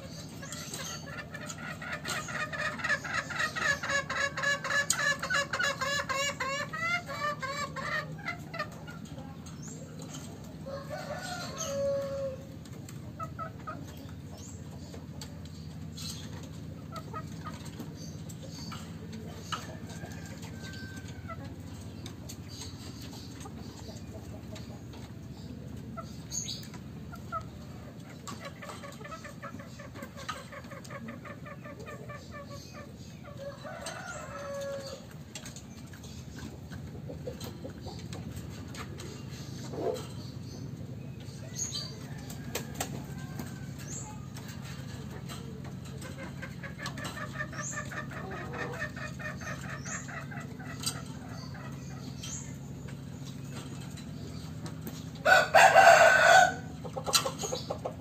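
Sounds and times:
fowl clucking: 0.0 - 9.4, 23.0 - 35.2, 41.9 - 53.0, 54.6 - 58.0.

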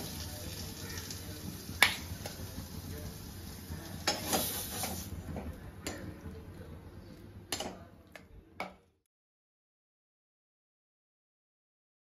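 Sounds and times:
low background hum: 0.0 - 9.0.

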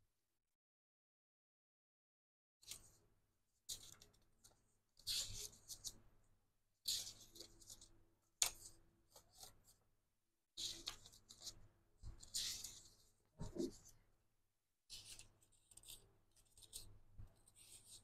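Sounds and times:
thick paper sheets flipping: 10.6 - 13.9, 14.9 - 18.0.

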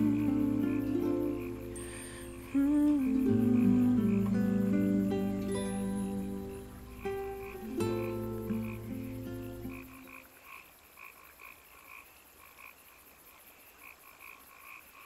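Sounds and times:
guitar music: 0.0 - 10.0
frogs croaking: 0.0 - 15.0.

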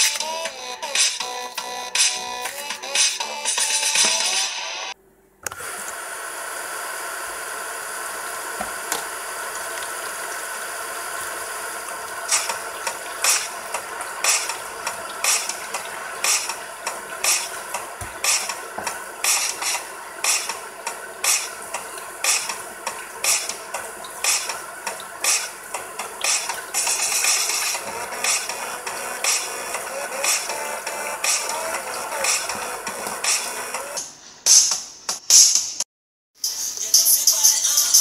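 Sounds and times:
tap water running into a sink: 7.7 - 34.0
sharp regular tapping: 12.3 - 30.6.

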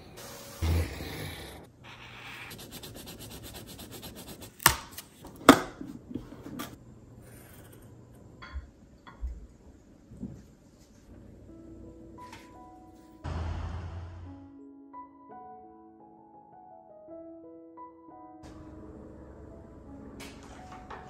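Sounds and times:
pencil scratching on paper: 1.3 - 4.7.

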